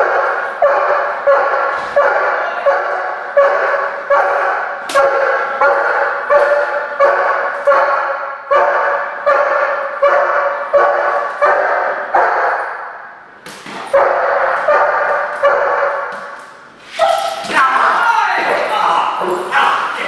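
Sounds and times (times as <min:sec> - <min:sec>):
dog barking: 0:00.0 - 0:13.0, 0:13.9 - 0:16.4, 0:17.0 - 0:17.4.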